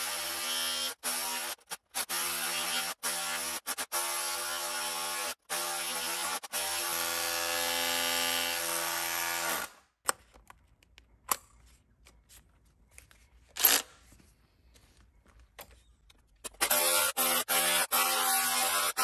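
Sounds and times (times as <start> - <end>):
rotary hammer chiseling ground: 15.8 - 19.0.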